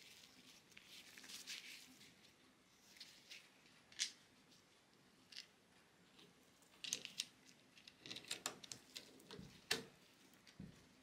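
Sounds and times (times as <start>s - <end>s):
gloved hands rustling: 0.0s - 5.4s.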